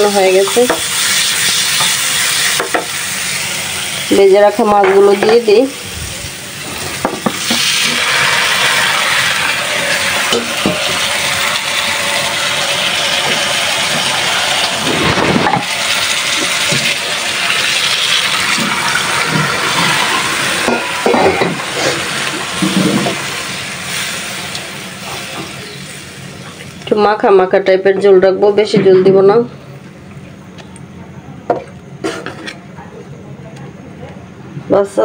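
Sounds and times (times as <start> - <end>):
water sizzling in hot pan: 0.0 - 26.8.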